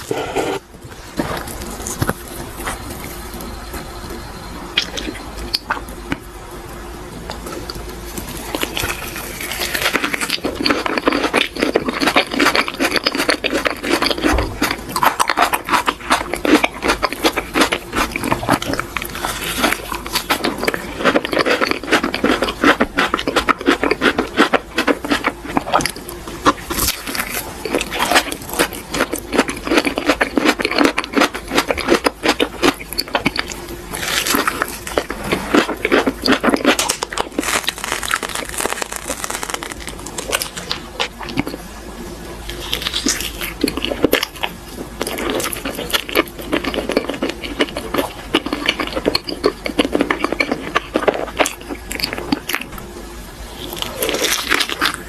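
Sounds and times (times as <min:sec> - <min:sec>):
sticky wet chewing: 0:07.3 - 0:41.7, 0:42.4 - 0:52.9.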